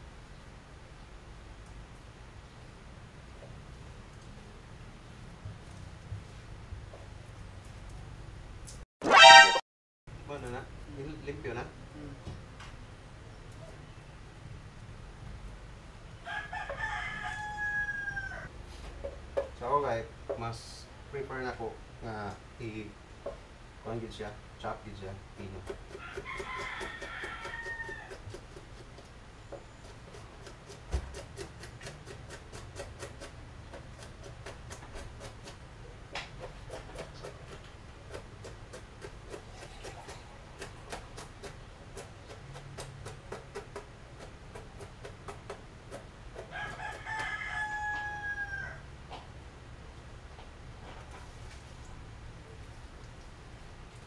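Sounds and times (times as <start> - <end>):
rooster crowing: 9.1 - 9.6, 16.2 - 18.5, 26.0 - 28.2, 46.4 - 48.9
knife chopping on cutting board: 36.2 - 47.2.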